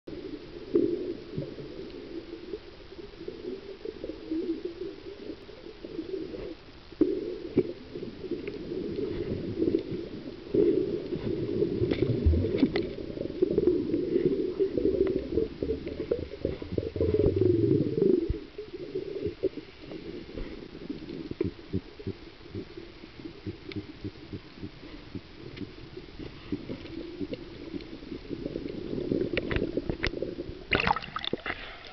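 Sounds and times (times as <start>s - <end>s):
muffled underwater rumble: 0.1s - 31.9s
faint clicks: 6.4s - 10.0s, 19.2s - 30.3s.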